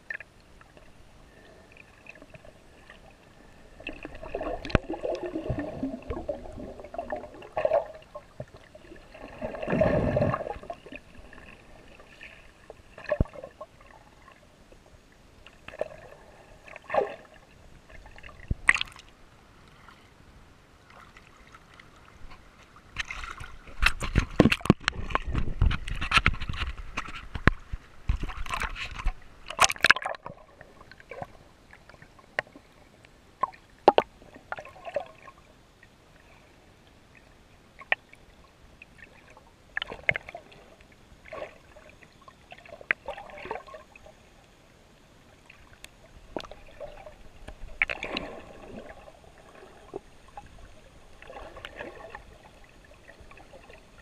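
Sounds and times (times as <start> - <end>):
water sloshing and gurgling: 0.0 - 54.0
water splashing: 1.8 - 14.4, 15.7 - 19.2, 28.1 - 32.6, 46.2 - 54.0.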